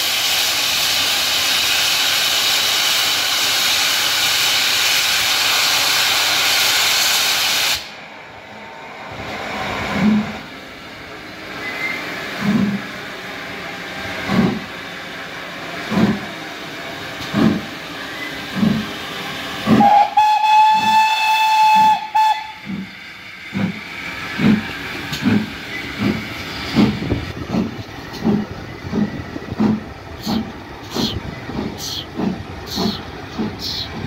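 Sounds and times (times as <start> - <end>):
steam hissing: 0.0 - 8.0, 8.6 - 34.0
steam locomotive exhaust beats: 0.0 - 34.0
steam whistle blast: 19.7 - 22.8.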